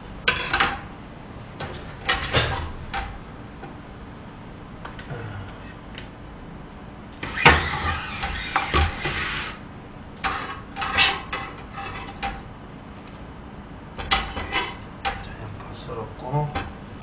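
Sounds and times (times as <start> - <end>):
knife scraping: 10.4 - 12.2.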